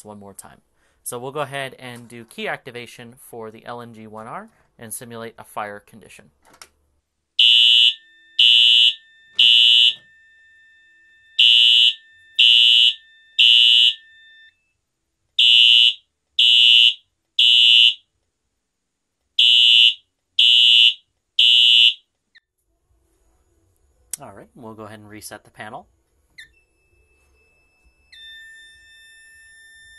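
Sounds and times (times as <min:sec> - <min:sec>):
fire alarm horn beeping: 0:07.4 - 0:14.6, 0:15.4 - 0:18.0, 0:19.4 - 0:22.0
faint steady tone: 0:07.9 - 0:15.2, 0:26.0 - 0:29.9.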